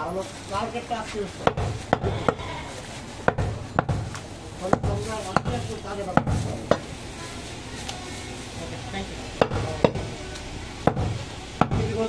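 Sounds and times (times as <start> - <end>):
knife chopping on wooden block: 1.4 - 2.4, 3.2 - 5.6, 9.4 - 10.1, 10.9 - 12.0.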